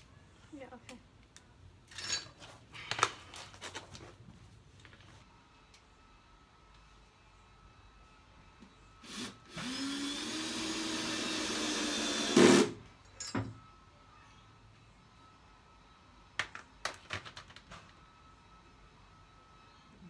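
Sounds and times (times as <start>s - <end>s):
power drill running: 9.0s - 12.8s.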